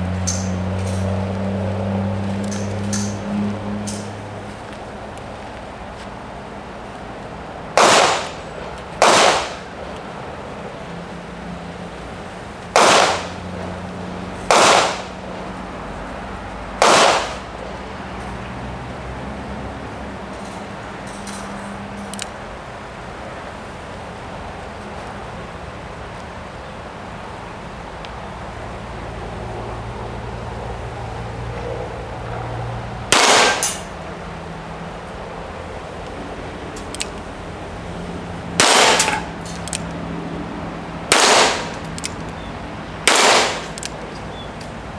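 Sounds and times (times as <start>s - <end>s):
gunshots: 7.8s - 8.4s, 9.0s - 9.6s, 12.8s - 13.4s, 14.5s - 15.2s, 16.8s - 17.5s, 33.1s - 33.8s, 38.6s - 39.3s, 41.1s - 41.8s, 43.1s - 43.8s.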